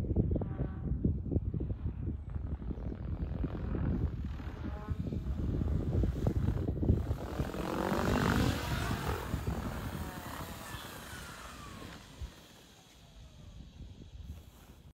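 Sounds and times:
helicopter rotor blades beating: 3.2s - 14.3s
electric motor whine: 3.7s - 14.8s.

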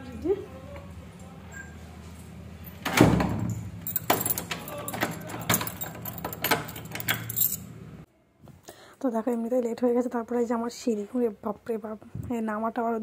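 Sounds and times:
keys jangling: 3.5s - 7.7s.

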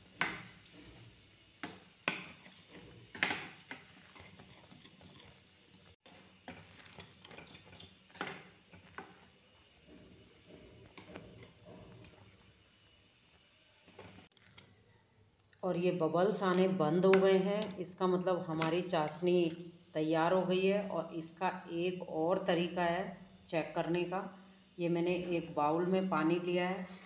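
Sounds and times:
syrup boiling: 0.0s - 13.2s
metal spoon scraping a pan: 2.4s - 12.4s.

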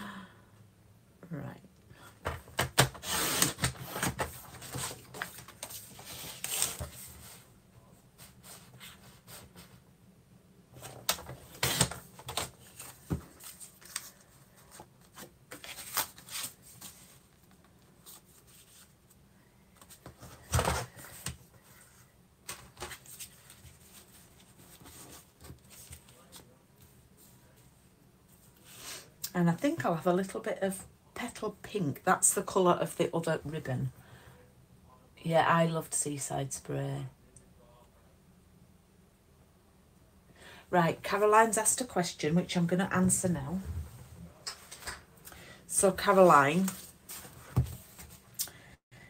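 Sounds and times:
paper rustling and sliding: 2.9s - 7.5s, 10.8s - 17.4s.

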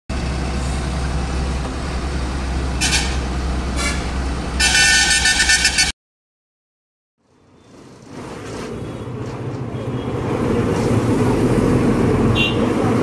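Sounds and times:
truck engine droning: 0.1s - 5.9s
truck horn blasts: 2.8s - 5.9s, 12.3s - 12.8s.

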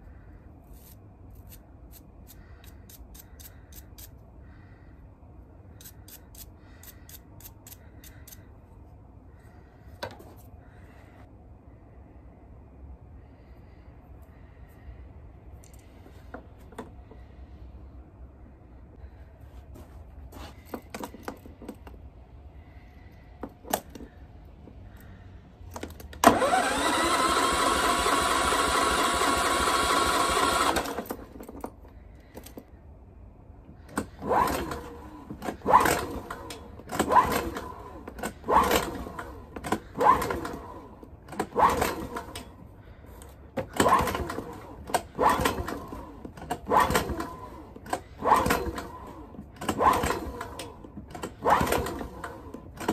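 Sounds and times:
recoil starter rope pulls: 25.7s - 31.8s, 33.8s - 52.9s
electric starter cranking engine: 26.1s - 31.4s, 33.9s - 42.5s, 43.2s - 52.9s.

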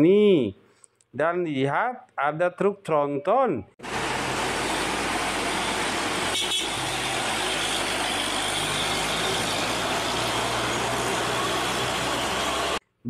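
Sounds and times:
road and wind noise: 3.8s - 12.8s
truck diesel engine running: 3.8s - 12.8s.

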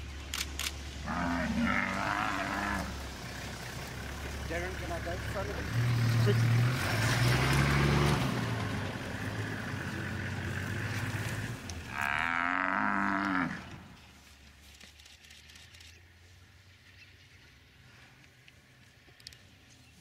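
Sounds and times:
vehicle engine running: 0.0s - 12.2s
buffalo bellowing: 1.0s - 3.0s, 9.2s - 13.8s.

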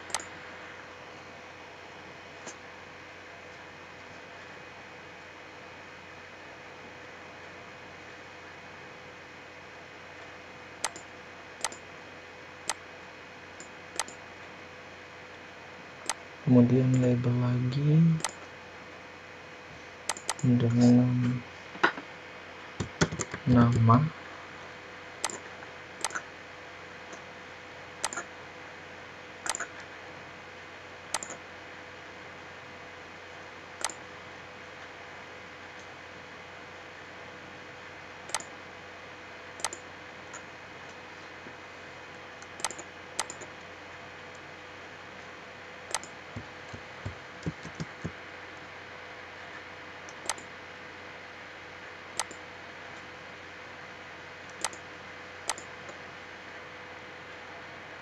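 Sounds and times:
computer mouse clicks: 0.0s - 0.4s, 10.8s - 11.8s, 13.6s - 14.2s, 16.0s - 16.2s, 18.2s - 18.4s, 20.0s - 20.5s, 22.8s - 23.4s, 25.2s - 26.3s, 28.0s - 28.3s, 29.4s - 29.9s, 31.1s - 31.4s, 33.8s - 34.0s, 38.3s - 38.6s, 39.6s - 41.0s, 42.4s - 43.7s, 45.9s - 48.7s, 50.1s - 50.5s, 52.2s - 52.4s, 54.5s - 54.8s, 55.5s - 56.0s
faint hum: 0.0s - 58.0s
steady low hiss: 0.0s - 58.0s.

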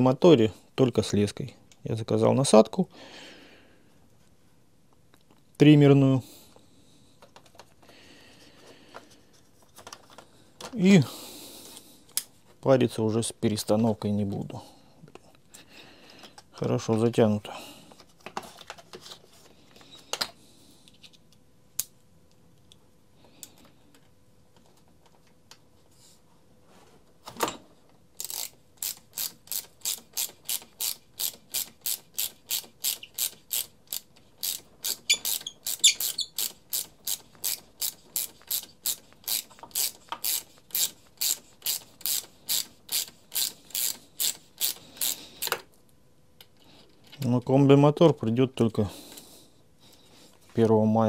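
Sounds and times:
ratchet wrench clicking: 28.2s - 45.6s.

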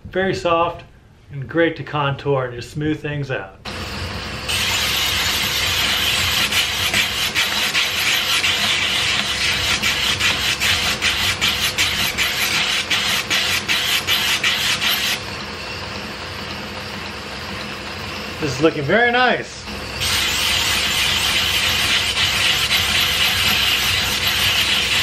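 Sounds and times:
belt grinder motor running: 3.7s - 18.4s, 19.6s - 25.0s
metal grinding hiss: 4.4s - 15.3s, 19.7s - 25.0s.

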